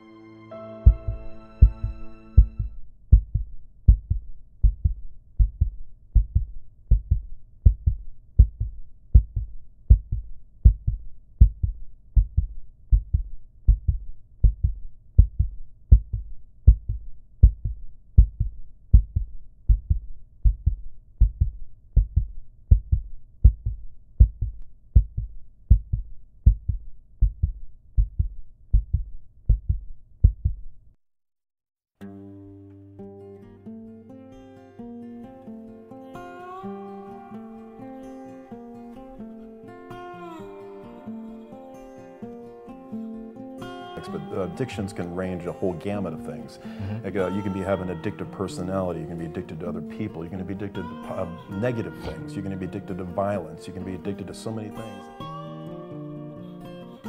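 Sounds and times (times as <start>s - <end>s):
heartbeat thumps: 0.8s - 30.7s.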